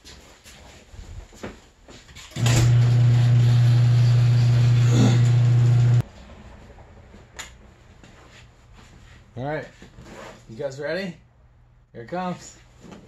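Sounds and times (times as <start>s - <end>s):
garage door opener running: 2.3s - 6.0s.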